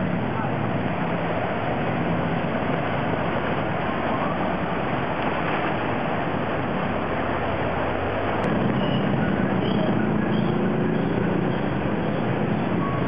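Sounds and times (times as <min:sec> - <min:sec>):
cars driving through floodwater: 0:00.0 - 0:13.0.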